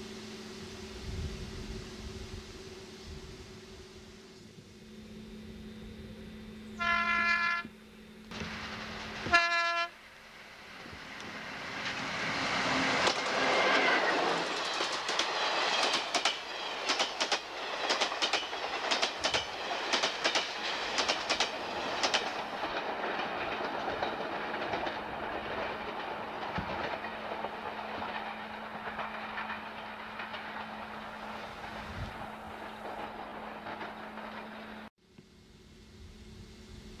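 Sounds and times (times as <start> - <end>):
train rushing past: 0.0 - 34.9
train wheels clicking on rail joints: 8.3 - 34.9.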